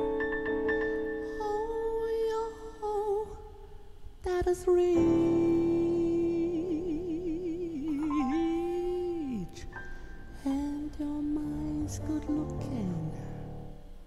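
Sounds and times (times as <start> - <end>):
piano chords: 0.0 - 3.1, 4.8 - 14.0.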